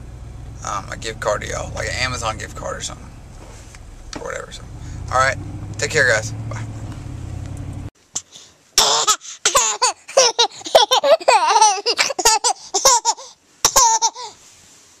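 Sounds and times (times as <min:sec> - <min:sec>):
baby laughing: 0:08.8 - 0:14.4.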